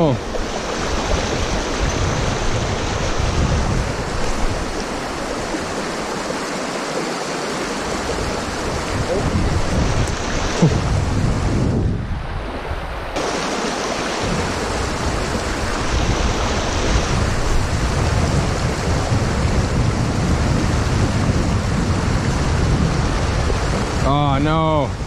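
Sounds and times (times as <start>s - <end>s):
river water rushing over rocks: 0.0s - 11.5s, 12.6s - 19.8s.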